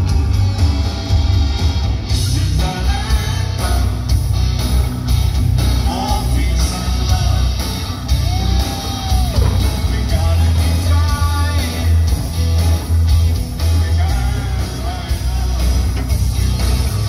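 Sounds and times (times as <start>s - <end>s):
live rock band playing: 0.0s - 17.0s
man singing into microphone: 2.2s - 4.0s, 5.8s - 7.7s, 9.1s - 12.2s, 13.3s - 16.0s.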